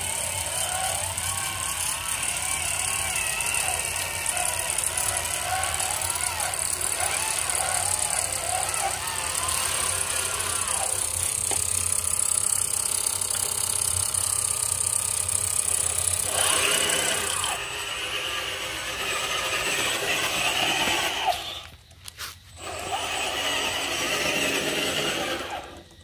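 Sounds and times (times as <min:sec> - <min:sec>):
toy truck electric motor whining: 0:00.0 - 0:26.0.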